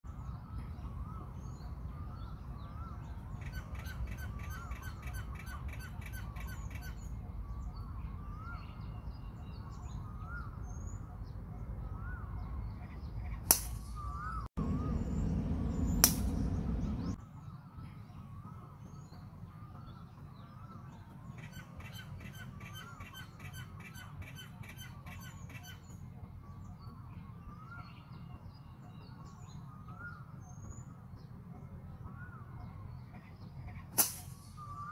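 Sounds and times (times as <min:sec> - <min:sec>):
birds calling: 0:00.2 - 0:34.9
golf club striking ball: 0:13.5 - 0:14.0, 0:15.9 - 0:17.0.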